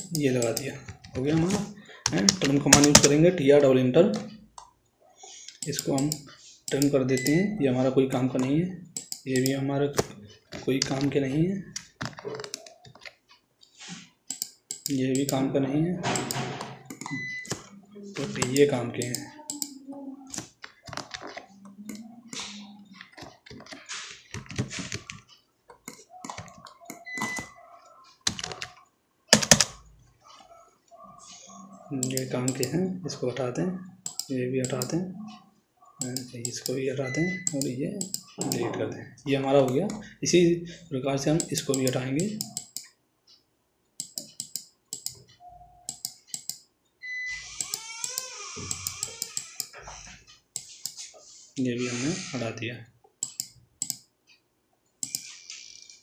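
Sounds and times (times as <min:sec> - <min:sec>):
keyboard keystrokes: 0:00.0 - 0:03.2, 0:16.1 - 0:19.7, 0:28.3 - 0:29.8, 0:41.4 - 0:42.9, 0:45.9 - 0:46.6, 0:47.6 - 0:49.7
mouse and keyboard clicks: 0:00.0 - 0:03.2, 0:05.5 - 0:07.4, 0:08.4 - 0:13.2, 0:14.3 - 0:15.4, 0:16.1 - 0:27.6, 0:32.0 - 0:32.8, 0:34.0 - 0:35.4, 0:36.0 - 0:38.6, 0:41.4 - 0:42.9, 0:44.0 - 0:46.6, 0:47.6 - 0:49.8, 0:50.6 - 0:51.1, 0:53.2 - 0:54.1, 0:55.0 - 0:55.4
mouse clicks: 0:05.5 - 0:07.4, 0:14.3 - 0:15.4, 0:16.1 - 0:21.1, 0:32.0 - 0:32.8, 0:34.0 - 0:35.0, 0:36.0 - 0:38.6, 0:41.4 - 0:42.9, 0:44.0 - 0:46.6, 0:53.2 - 0:54.1, 0:55.0 - 0:55.3.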